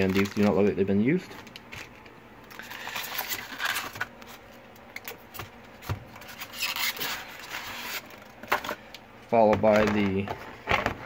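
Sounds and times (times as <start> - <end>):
rubbing and scraping on foam: 6.2 - 8.2.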